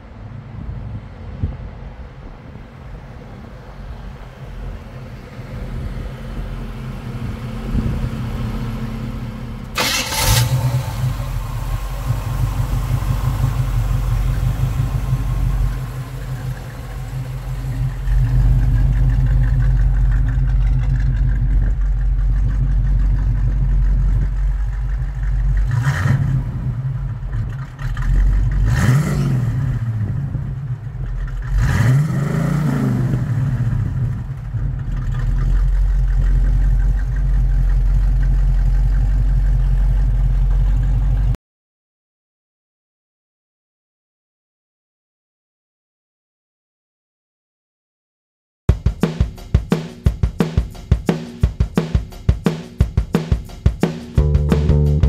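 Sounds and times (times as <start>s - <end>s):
car engine idling: 2.5s - 28.7s, 33.4s - 41.4s, 53.4s - 55.0s
car engine starting: 2.6s - 41.4s, 53.5s - 55.0s
car engine revving: 4.5s - 39.2s, 54.1s - 55.0s.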